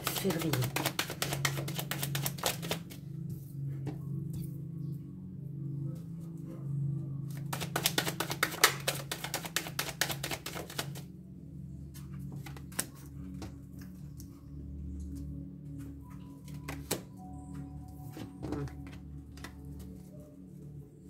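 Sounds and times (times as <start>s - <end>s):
cards being shuffled: 0.0s - 3.0s, 7.3s - 11.1s, 12.3s - 13.2s, 16.5s - 17.0s, 18.2s - 20.1s
background music with low notes: 0.0s - 21.0s
light taps of cards: 7.3s - 11.0s.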